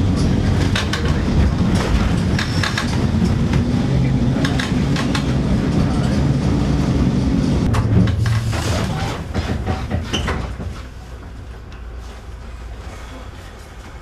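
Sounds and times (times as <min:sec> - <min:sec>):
tram running rumble: 0:00.0 - 0:14.0
rattles and clunks of fittings: 0:07.7 - 0:11.4.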